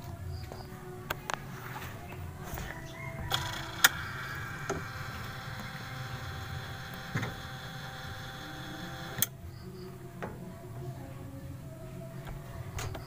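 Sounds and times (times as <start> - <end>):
washing machine motor whirring: 3.1 - 9.3
sharp clicks: 3.3 - 9.3.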